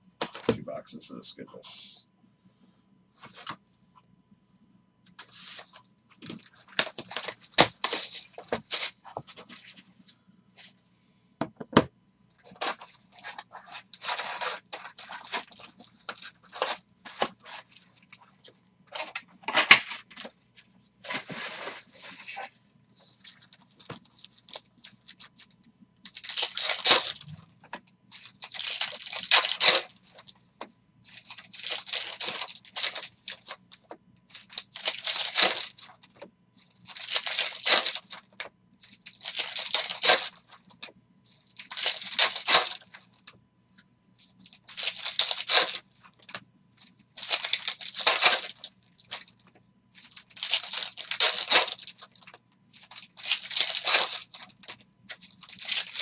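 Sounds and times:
foil wrappers tearing and crumpling: 5.2s - 9.2s, 12.4s - 20.0s, 23.2s - 27.4s, 28.1s - 30.4s, 31.1s - 43.2s, 44.2s - 49.4s, 50.0s - 56.0s.

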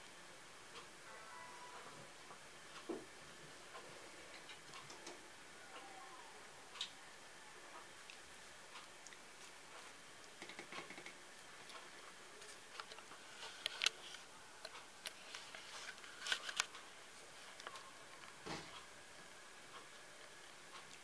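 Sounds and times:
small clicks and taps: 9.8s - 11.8s.

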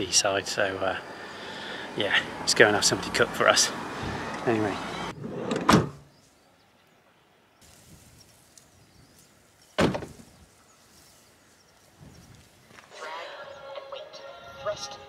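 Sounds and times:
faint outdoor background: 0.0s - 15.0s
van doors shutting heavy thuds: 5.4s - 6.1s, 9.8s - 10.2s.

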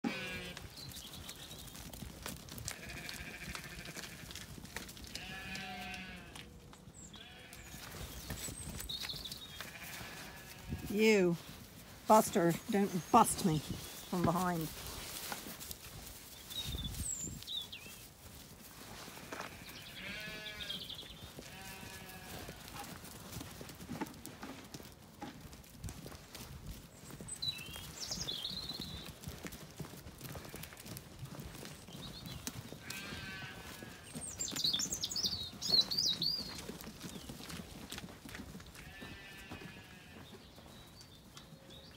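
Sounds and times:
sheep bleating: 0.0s - 0.6s, 2.7s - 4.4s, 5.1s - 6.5s, 7.1s - 7.8s, 9.6s - 11.0s, 19.2s - 20.8s, 21.4s - 22.9s, 32.8s - 34.2s, 38.8s - 40.2s.

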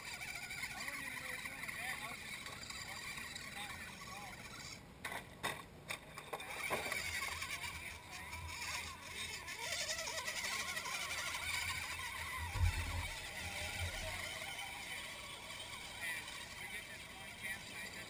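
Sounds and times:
electric motor and gear whine: 6.2s - 18.0s.

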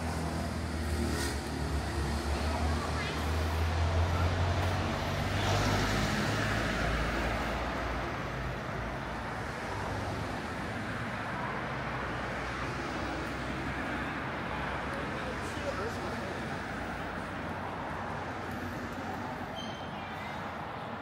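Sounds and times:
road noise: 0.0s - 21.0s
vehicle engine hum passing: 0.0s - 21.0s.

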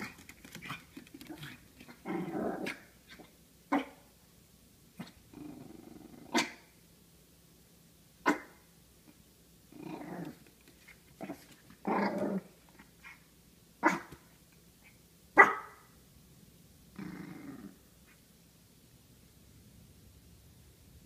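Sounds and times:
dog growling: 0.0s - 4.0s, 5.0s - 6.6s, 9.7s - 10.5s, 11.2s - 13.2s, 16.9s - 17.8s
small dog barking: 2.6s - 4.1s, 6.3s - 6.7s, 8.2s - 8.7s, 13.8s - 16.0s.

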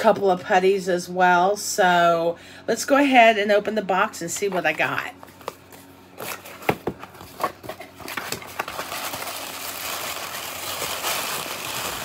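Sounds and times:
tissue paper rustling: 6.2s - 12.0s.

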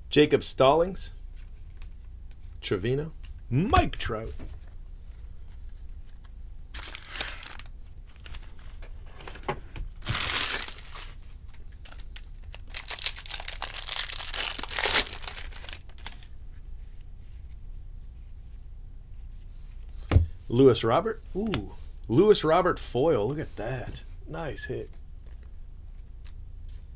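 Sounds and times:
foil wrapper crinkling and tearing: 6.7s - 8.6s, 10.0s - 16.4s.

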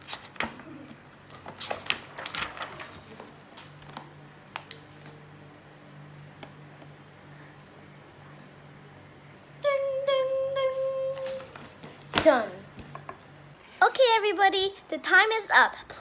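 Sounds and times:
paper pages rustling: 0.0s - 0.5s, 1.2s - 5.2s, 11.1s - 13.0s
low steady hum: 0.0s - 16.0s.

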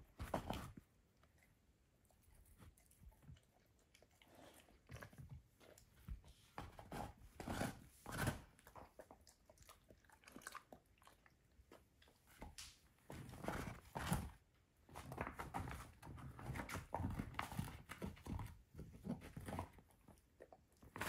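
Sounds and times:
dog gnawing a bone: 0.2s - 14.4s.

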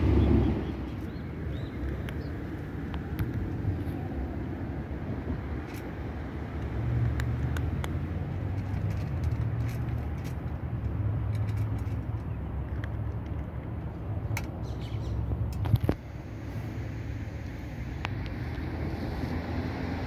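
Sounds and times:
steady low rumble: 0.0s - 19.2s.

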